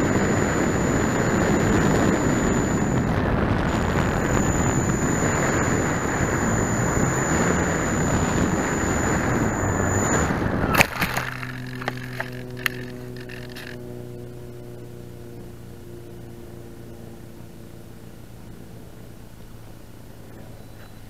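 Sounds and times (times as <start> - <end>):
thin high whine: 0.0 - 17.3
wind and propeller rushing: 0.0 - 20.2.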